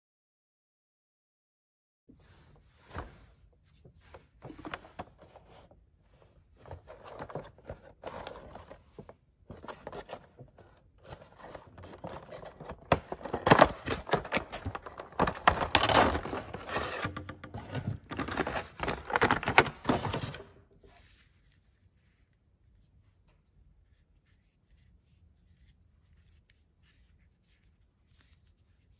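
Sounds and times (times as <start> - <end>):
packaging scraping and rustling: 6.6 - 20.6.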